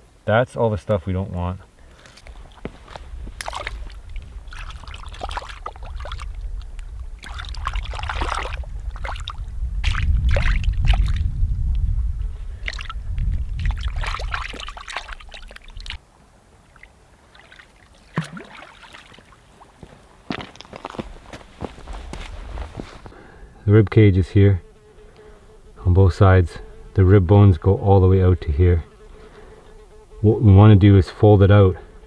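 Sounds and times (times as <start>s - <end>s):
water splashing and trickling: 1.9s - 11.4s, 12.5s - 16.0s, 16.6s - 21.0s
fish being rinsed in water: 3.4s - 6.3s, 7.2s - 11.2s, 13.6s - 16.0s
heavy low rumble: 6.3s - 14.0s.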